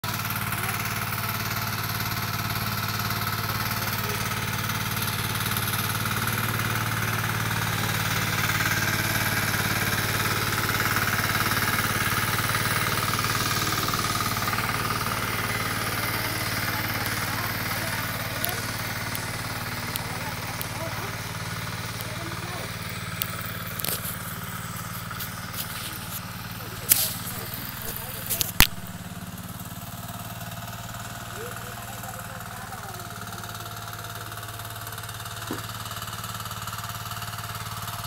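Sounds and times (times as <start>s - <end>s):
hand tractor engine knocking: 0.1s - 28.7s.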